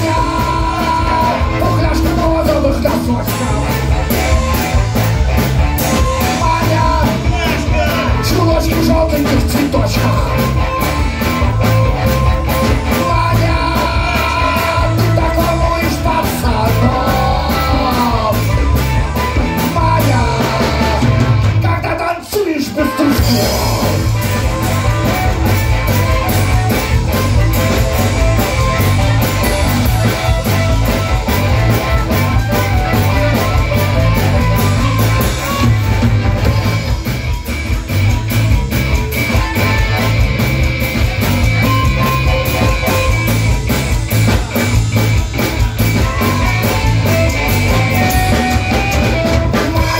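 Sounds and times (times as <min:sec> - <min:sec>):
bass: 0:00.0 - 0:49.9
drum kit: 0:00.0 - 0:49.9
electric guitars: 0:00.0 - 0:49.9
harmonica: 0:22.8 - 0:38.2.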